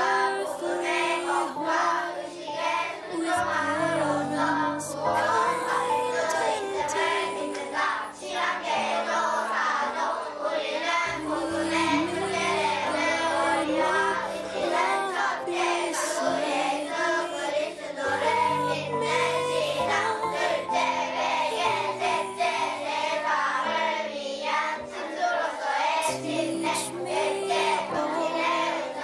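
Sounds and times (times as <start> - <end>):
children singing: 0.0 - 29.0.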